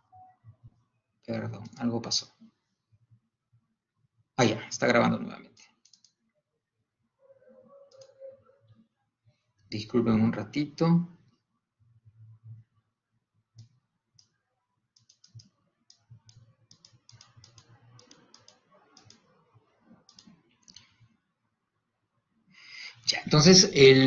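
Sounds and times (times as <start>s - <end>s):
computer mouse clicking: 5.6s - 6.2s, 7.9s - 8.2s, 13.6s - 21.2s.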